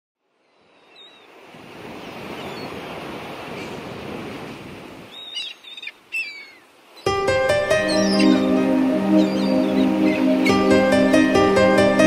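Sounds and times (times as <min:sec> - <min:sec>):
short falling bird calls: 0:05.1 - 0:07.1.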